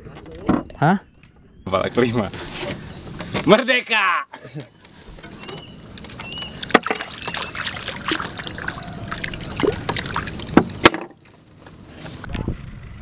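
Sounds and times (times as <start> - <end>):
water splashing against a boat: 5.1 - 12.2
sharp knocks: 9.9 - 11.2.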